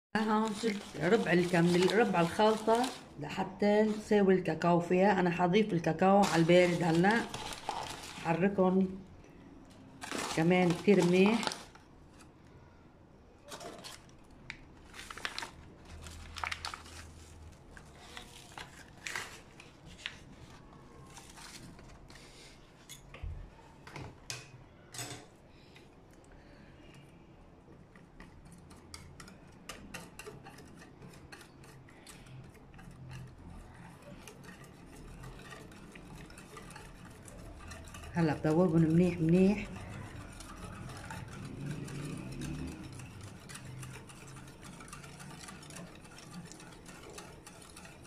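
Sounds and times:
wire whisk beating in a pan: 0.2 - 3.1, 6.0 - 8.6, 10.0 - 11.7, 27.9 - 48.0
utensil clinking on metal saucepan: 28.6 - 48.0.

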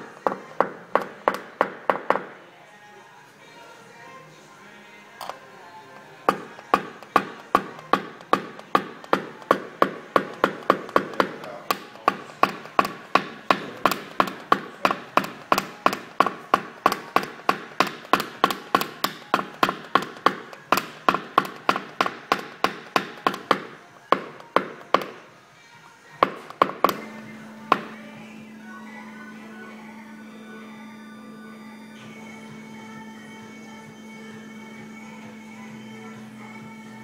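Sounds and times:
hammer tapping plastic tool: 6.3 - 25.2, 26.2 - 27.1, 27.7 - 28.0.

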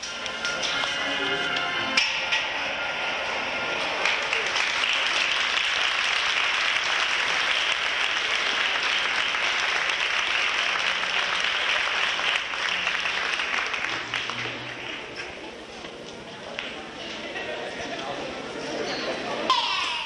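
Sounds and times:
audience applauding: 3.6 - 15.2.

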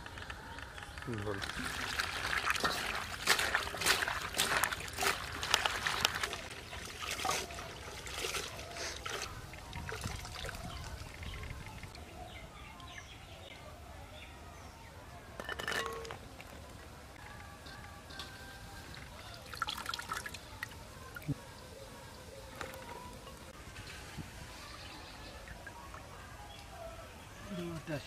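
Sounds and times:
water trickling and dripping: 1.0 - 11.9, 18.8 - 21.4
water splashing in metal basin: 1.3 - 11.3, 18.8 - 21.3.

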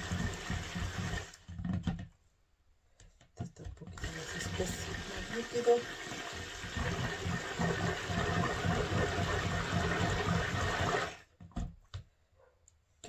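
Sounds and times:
stick blender motor humming: 4.0 - 11.2.

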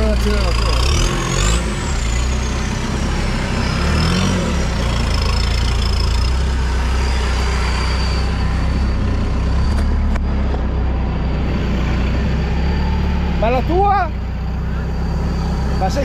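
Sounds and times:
off-road vehicle engine running: 0.0 - 16.0
thin high whine: 1.9 - 16.0.

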